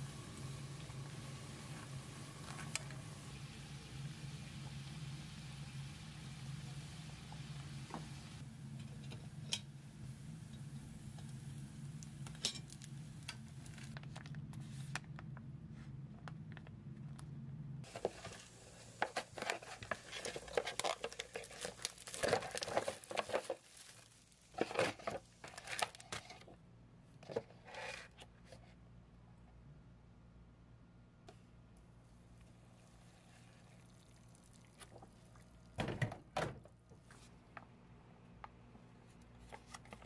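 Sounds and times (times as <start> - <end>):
food deep-frying in oil: 0.0 - 14.0
packaging crinkling and tearing: 19.1 - 26.2
oil popping: 33.6 - 35.9.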